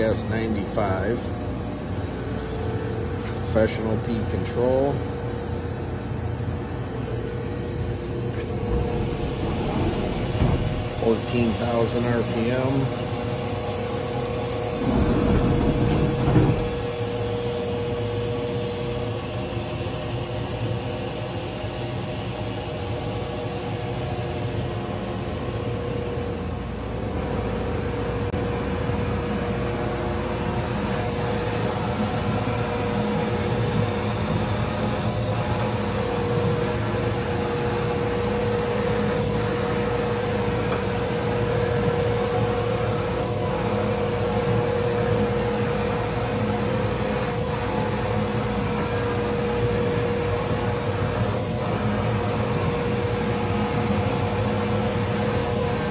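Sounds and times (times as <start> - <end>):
machinery humming: 0.0 - 21.3, 23.4 - 55.9
short rumble: 8.0 - 12.6, 14.5 - 17.2.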